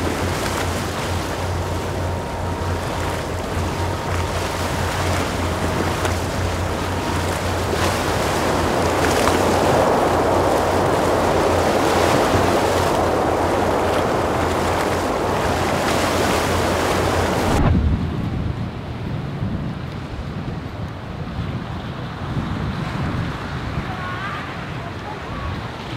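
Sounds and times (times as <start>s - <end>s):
steady low hum: 0.0s - 19.4s
breaking waves: 0.0s - 25.9s
wind buffeting microphone: 0.0s - 25.9s.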